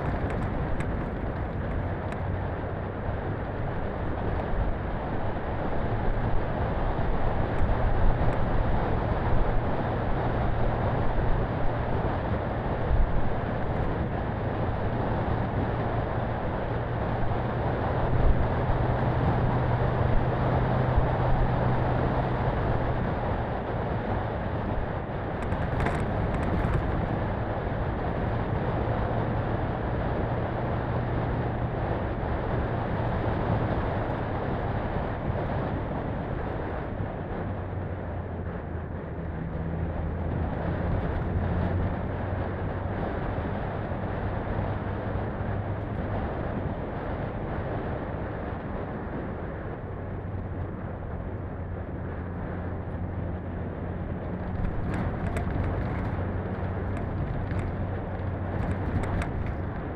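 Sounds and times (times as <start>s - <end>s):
tyres on gravel road: 0.0s - 59.9s
car engine running: 50.1s - 59.9s.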